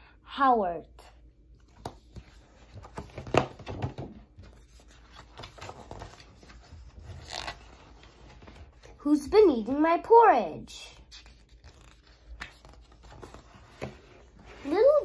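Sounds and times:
book pages turning: 1.6s - 9.0s, 11.0s - 15.0s.

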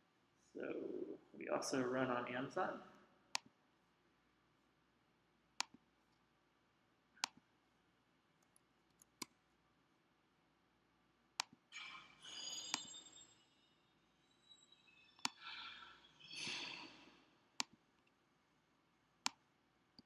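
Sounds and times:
computer mouse clicks: 5.6s - 6.2s.

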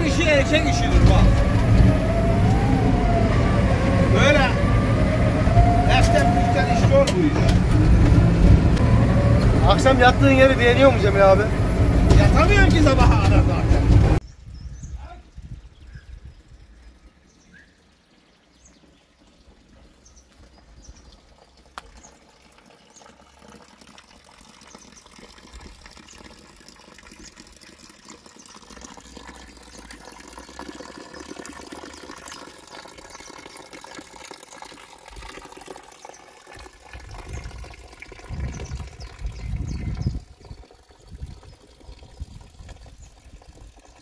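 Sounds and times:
low rumbles: 0.0s - 15.0s
water splashing into stone trough: 19.7s - 44.0s.

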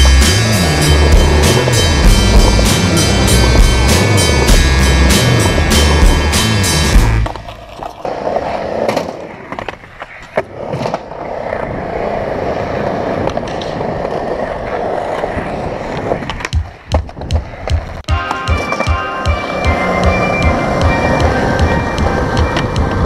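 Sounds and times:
skateboard wheels rolling on concrete: 0.0s - 23.0s
skateboard clacks: 7.0s - 23.0s.

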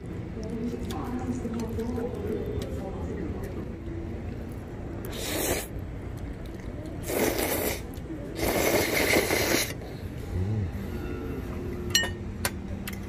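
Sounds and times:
person slurping pasta: 5.0s - 5.8s, 7.0s - 10.7s.

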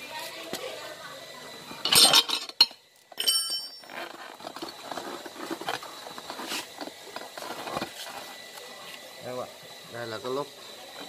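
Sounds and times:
metallic clink ringing: 1.8s - 3.9s
tyre rubber scraping rim: 3.8s - 9.0s.

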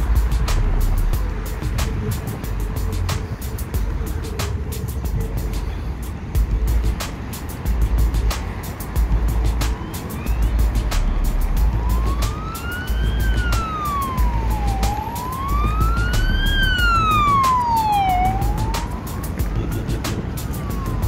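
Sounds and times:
electronic background music: 0.0s - 21.0s
siren-like wail: 9.7s - 21.0s.

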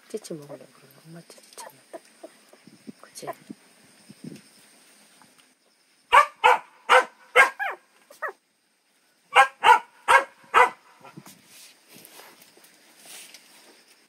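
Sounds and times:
dog barking: 6.1s - 8.4s, 9.3s - 11.1s.

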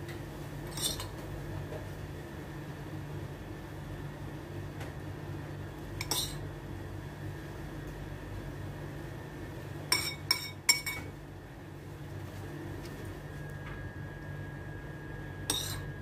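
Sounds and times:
spoon scraping a bowl: 0.7s - 1.1s, 6.0s - 6.4s, 10.0s - 11.1s, 15.5s - 15.9s
spoon clinking against bowl: 6.0s - 6.4s, 9.9s - 11.1s, 15.5s - 15.9s.

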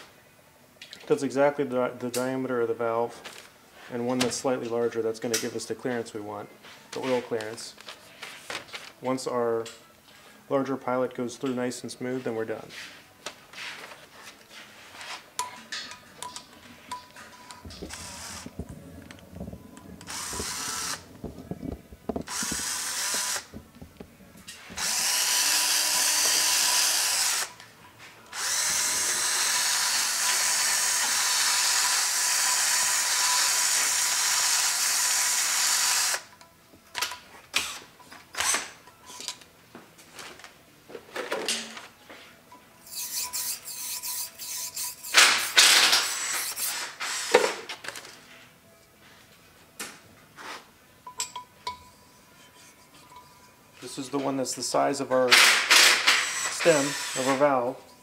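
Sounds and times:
cordless drill spinning: 17.8s - 18.6s, 20.0s - 21.4s, 22.1s - 23.6s, 24.7s - 27.6s, 28.3s - 36.3s, 44.7s - 47.4s, 56.0s - 57.5s.

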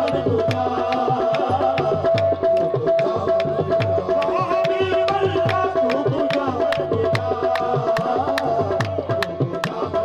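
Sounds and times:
tabla beat: 0.0s - 10.0s.

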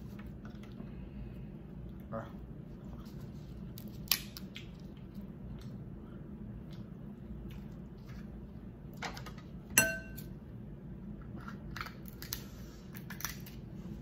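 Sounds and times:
sharp ringing clink: 9.8s - 10.2s.

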